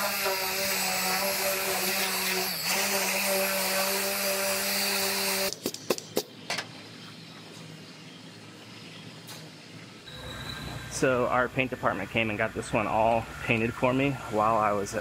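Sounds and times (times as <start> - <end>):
die grinder running: 0.0 - 5.6.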